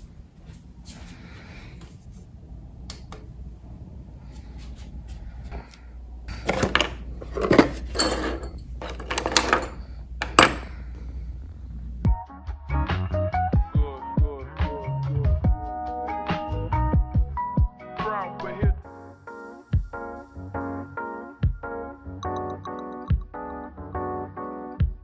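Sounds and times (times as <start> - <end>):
steady low hum: 0.0 - 12.1
dental instruments clinking on desk: 6.5 - 10.8.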